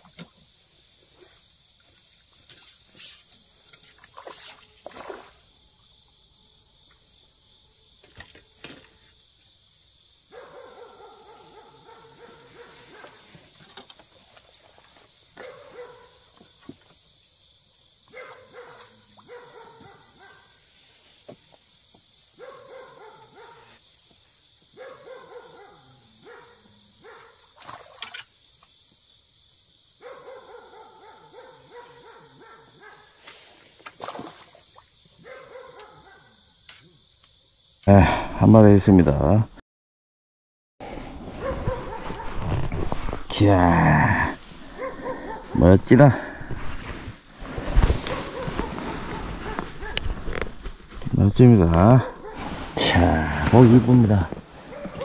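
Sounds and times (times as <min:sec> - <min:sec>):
dog calling: 0:10.3 - 0:13.3, 0:15.4 - 0:16.2, 0:18.1 - 0:20.5, 0:22.4 - 0:23.8, 0:24.8 - 0:27.4, 0:30.0 - 0:33.1, 0:35.2 - 0:36.4, 0:41.4 - 0:42.4, 0:44.6 - 0:45.7, 0:48.1 - 0:50.2, 0:52.0 - 0:52.6.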